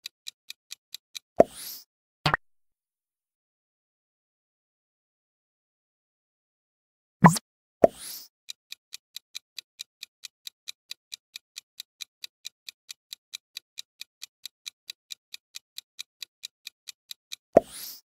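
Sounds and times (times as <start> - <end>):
clock ticking: 8.5 - 18.0.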